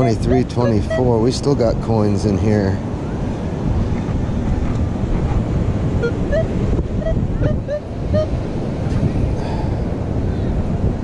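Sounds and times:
metal detector beeps: 0.0 - 1.1
beach surf: 0.0 - 11.0
wind buffeting microphone: 0.0 - 11.0.

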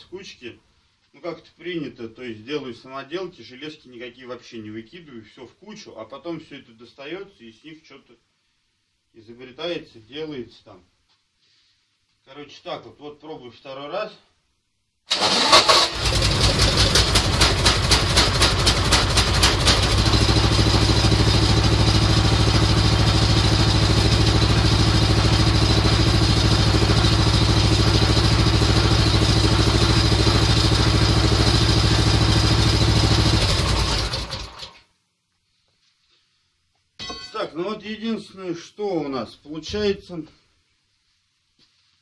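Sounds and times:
starter motor cranking: 15.1 - 20.0
small engine running: 15.5 - 34.7
engine knock: 16.0 - 34.7.

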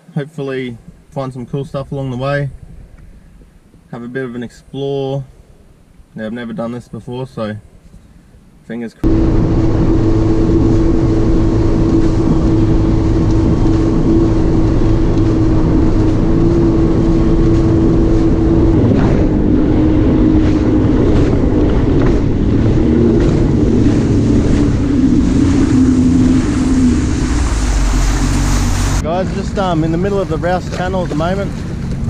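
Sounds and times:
watercraft engine drone: 0.4 - 32.0
rush of wind and spray: 9.0 - 32.0.

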